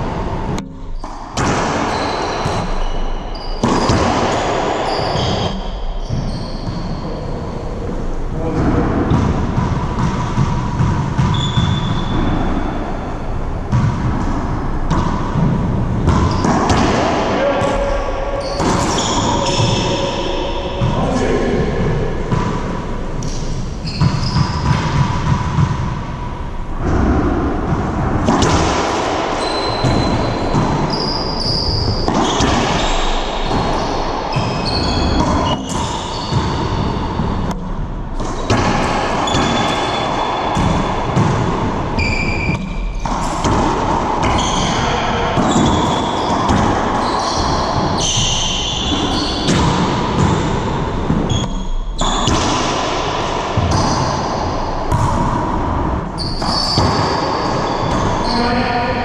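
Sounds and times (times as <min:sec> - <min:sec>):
sneakers squeaking on hardwood: 0:00.8 - 0:07.6, 0:11.2 - 0:12.8, 0:16.0 - 0:17.1, 0:17.7 - 0:20.9, 0:23.2 - 0:24.9, 0:29.3 - 0:37.4, 0:42.0 - 0:43.2, 0:44.2 - 0:50.5, 0:51.3 - 0:52.6, 0:56.2 - 0:58.5.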